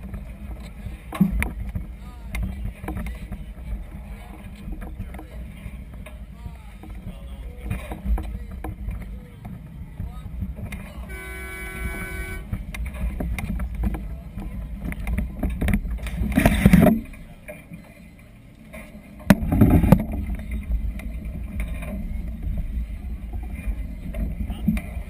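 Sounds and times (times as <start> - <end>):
short steady tone: 11.1 - 12.5.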